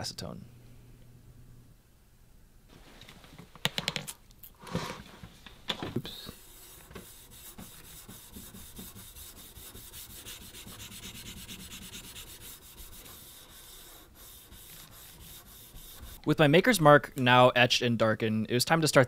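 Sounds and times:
sanding pad rubbing steel blade: 6.4s - 16.2s.

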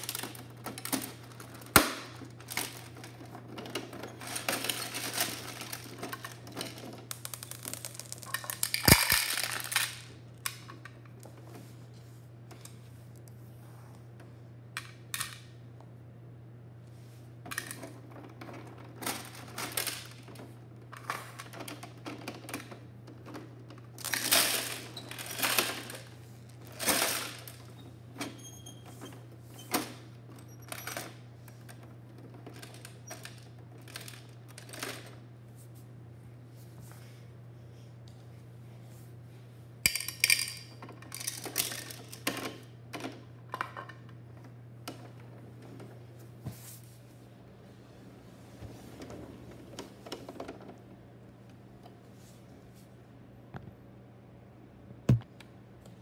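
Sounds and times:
plastic toy truck rattling: 0.0s - 10.1s, 21.0s - 27.7s, 39.9s - 44.0s.

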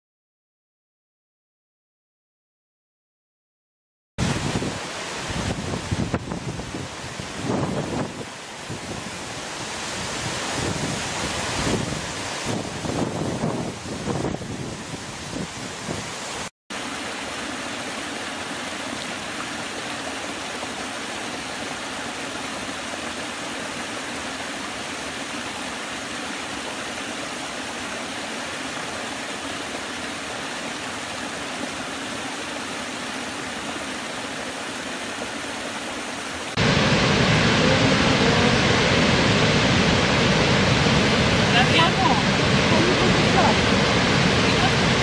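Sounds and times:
wind buffeting microphone: 4.2s - 16.2s, 36.6s - 45.0s
deep waterfall roar: 4.2s - 45.0s
stream pouring over rocks: 4.2s - 45.0s.

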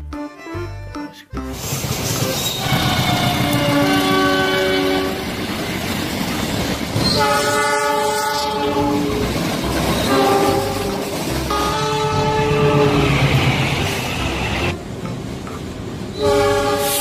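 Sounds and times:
passing train rumble and clatter: 1.5s - 17.0s
locomotive air horn blasts: 2.4s - 5.3s, 7.1s - 9.2s, 10.0s - 13.2s, 16.2s - 17.0s.

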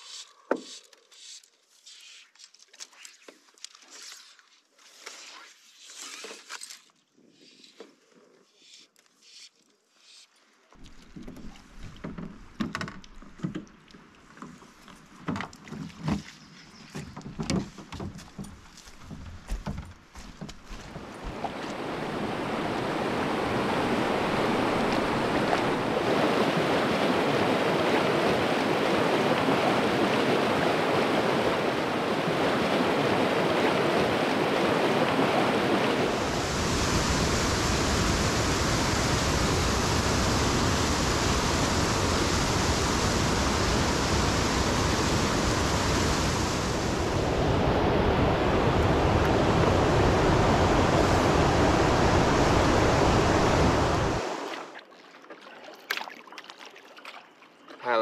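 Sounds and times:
rushing river water: 20.7s - 58.0s.

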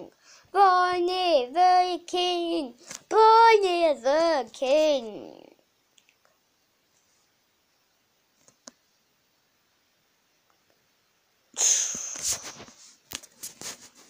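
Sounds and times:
loud rustle of fur on phone: 12.1s - 14.0s.

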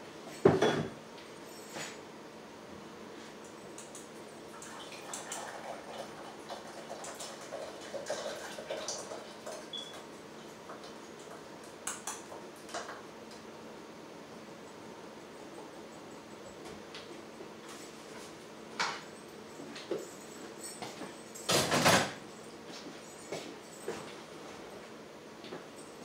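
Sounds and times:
liquid trickling: 4.5s - 9.8s.

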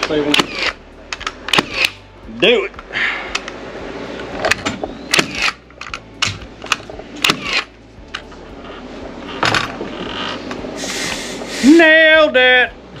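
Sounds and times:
hammer striking nails: 1.5s - 2.0s.

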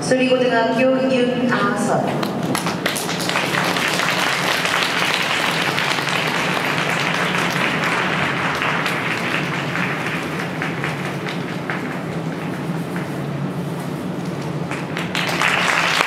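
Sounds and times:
audience applauding: 2.2s - 13.3s, 14.4s - 16.0s.

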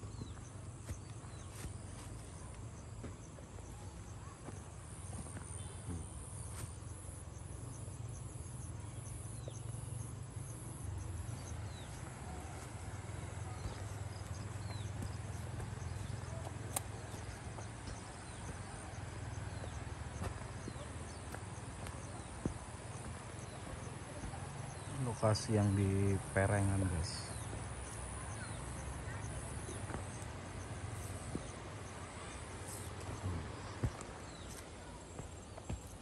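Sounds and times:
footsteps on dirt path: 0.0s - 7.9s, 10.4s - 36.0s
insects chirping: 0.0s - 36.0s
bird chirps: 9.0s - 36.0s.

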